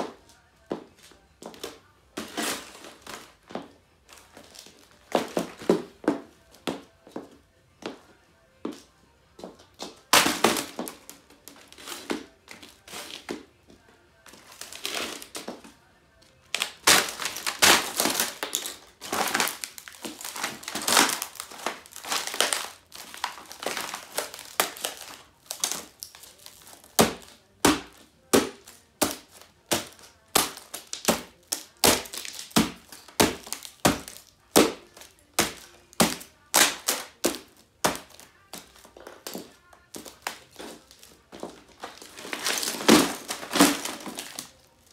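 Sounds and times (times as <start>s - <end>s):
high heels stamping: 0.0s - 8.0s
laptop plastic crunching: 1.0s - 6.0s, 9.8s - 13.4s, 14.3s - 15.8s, 16.4s - 44.9s.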